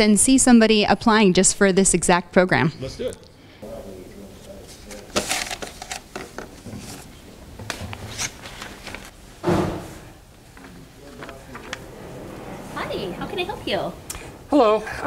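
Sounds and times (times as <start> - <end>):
paper brochures rustling: 4.3 - 9.2, 10.4 - 12.4
dull thump: 9.4 - 10.0.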